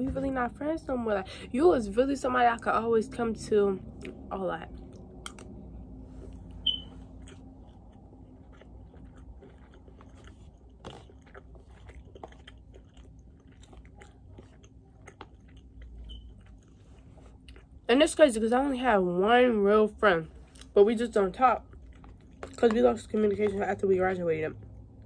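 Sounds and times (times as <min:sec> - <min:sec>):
person chewing food: 0:04.0 - 0:17.9, 0:20.4 - 0:23.9.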